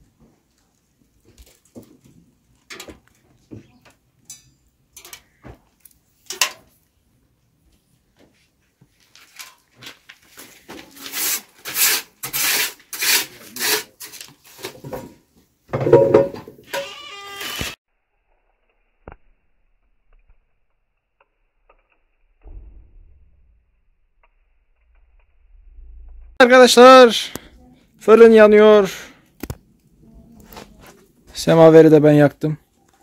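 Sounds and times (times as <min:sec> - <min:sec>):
wood scraping and rubbing: 0:10.3 - 0:15.2.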